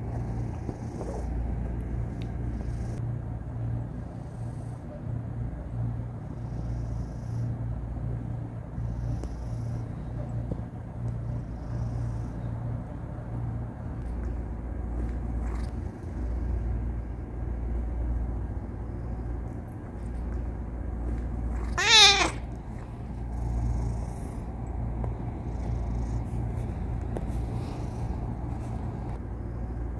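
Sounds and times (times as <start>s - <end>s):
cat purring: 0.0s - 3.0s, 8.7s - 10.2s, 11.1s - 12.6s, 13.4s - 29.9s.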